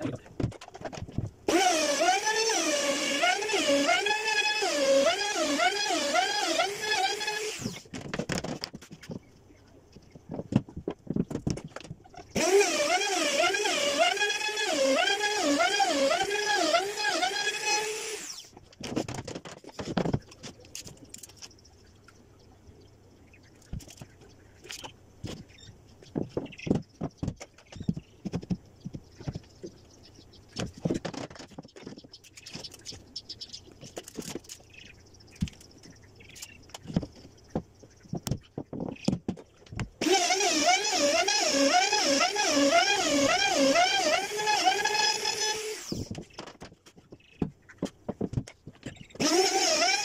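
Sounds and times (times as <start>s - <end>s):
router motor running: 1.5s - 7.8s, 12.4s - 18.5s, 40.0s - 46.1s, 49.2s - 50.0s
wooden knocks and taps: 46.4s - 49.0s.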